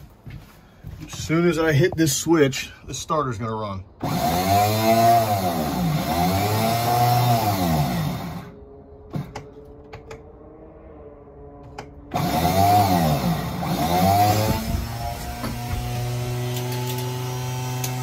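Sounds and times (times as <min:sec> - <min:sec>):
starter motor cranking engine: 0:04.0 - 0:08.5, 0:12.1 - 0:18.0.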